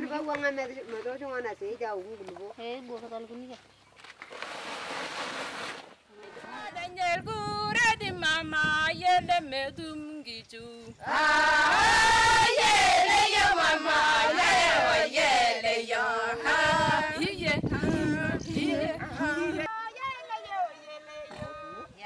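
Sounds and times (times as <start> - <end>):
women's chorus chanting: 11.0 - 19.7.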